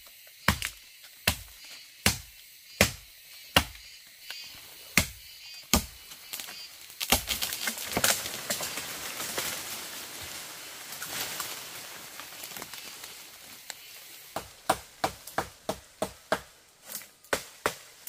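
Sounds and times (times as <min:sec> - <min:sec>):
blade chopping wood: 0:00.4 - 0:03.8, 0:05.0 - 0:06.0, 0:07.0 - 0:08.3.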